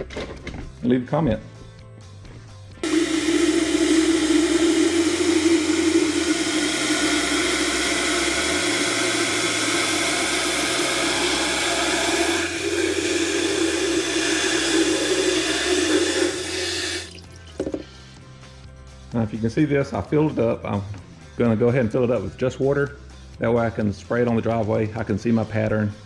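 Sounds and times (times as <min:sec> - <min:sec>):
water running into plastic tank: 0:02.8 - 0:17.9.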